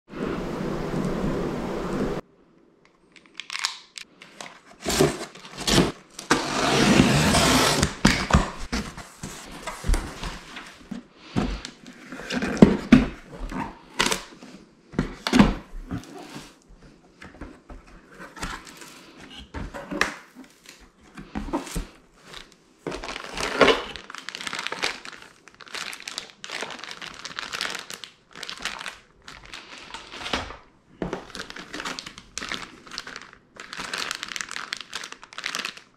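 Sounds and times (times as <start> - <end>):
packaging crinkling and rustling: 3.2 - 16.6, 17.3 - 35.9
cardboard scraping: 4.6 - 13.9.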